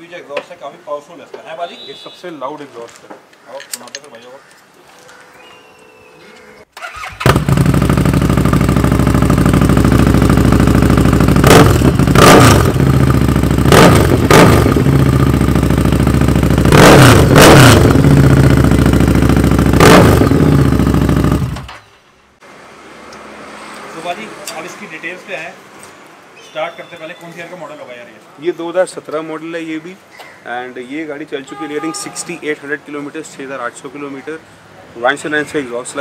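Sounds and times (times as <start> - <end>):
motorcycle engine idling loudly: 7.3 - 21.6.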